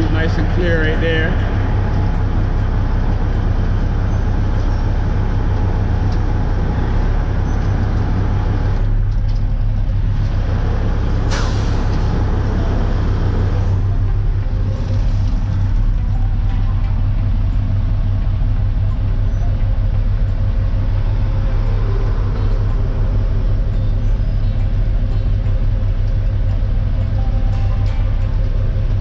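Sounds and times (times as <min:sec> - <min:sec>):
diesel truck engine running: 0:00.0 - 0:29.0
air brake hiss: 0:11.3 - 0:12.0.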